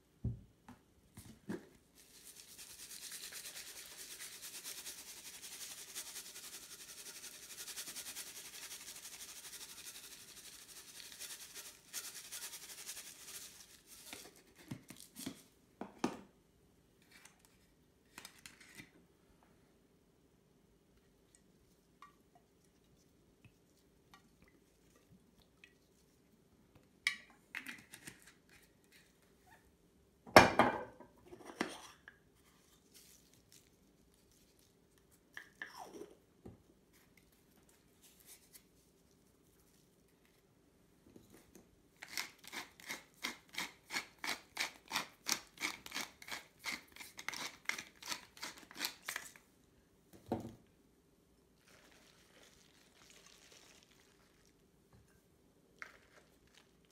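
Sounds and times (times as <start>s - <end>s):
pepper mill grinding: 2.1s - 14.3s, 42.0s - 49.4s.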